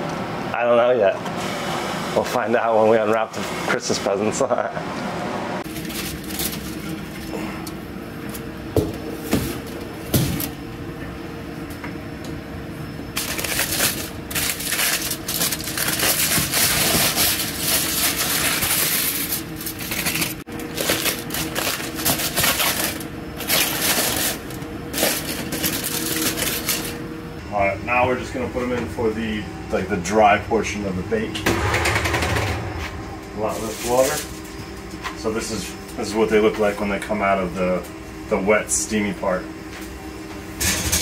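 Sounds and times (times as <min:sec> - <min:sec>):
steady hum: 0:00.0 - 0:41.0
aluminium foil crinkling: 0:05.7 - 0:06.9, 0:13.2 - 0:27.0.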